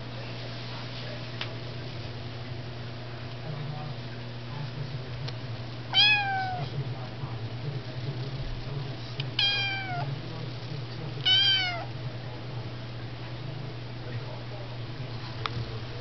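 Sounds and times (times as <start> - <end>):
kitten meowing: 5.9 - 6.7, 9.4 - 10.1, 11.2 - 11.9.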